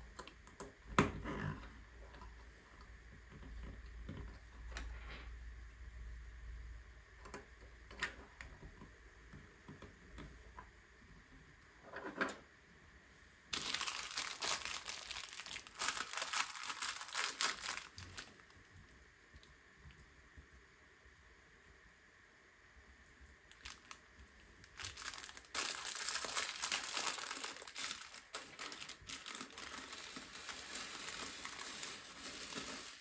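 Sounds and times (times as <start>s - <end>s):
plastic bag crinkling and tearing: 13.5s - 18.6s, 23.5s - 33.0s.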